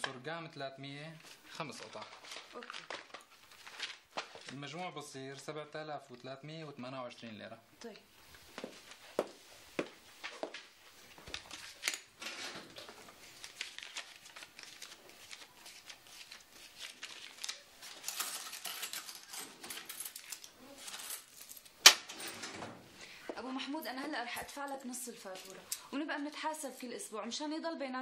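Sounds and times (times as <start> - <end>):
banknotes rustling and flicking: 1.2 - 6.3, 8.2 - 22.4.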